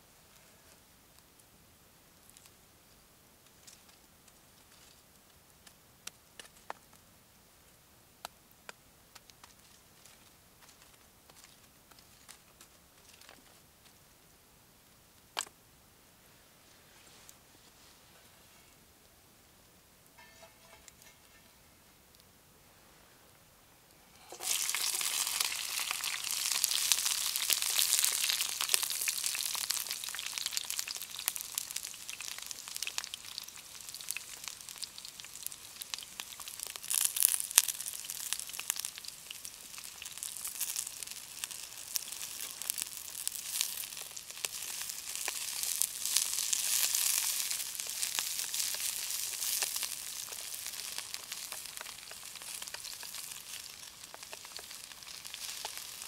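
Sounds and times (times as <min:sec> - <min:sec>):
food sizzling in a hot pan: 0:24.1 - 0:56.0.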